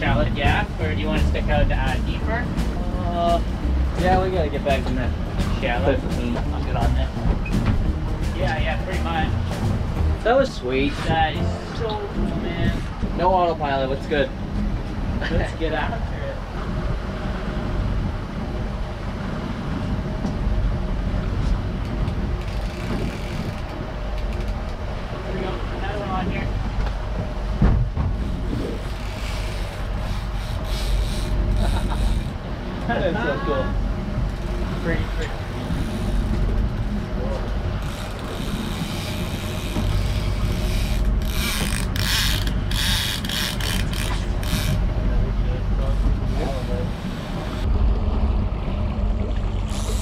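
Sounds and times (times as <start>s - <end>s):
boat engine droning: 0.0s - 50.0s
water noise: 0.0s - 50.0s
wind: 0.0s - 50.0s
fishing reel ratcheting: 28.8s - 32.4s, 37.8s - 44.8s, 49.7s - 50.0s.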